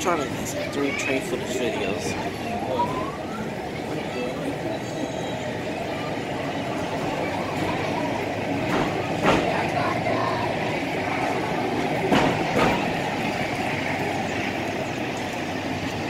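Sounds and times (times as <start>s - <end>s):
train passing rumble: 0.0s - 16.0s
train wheel clanks: 6.6s - 16.0s.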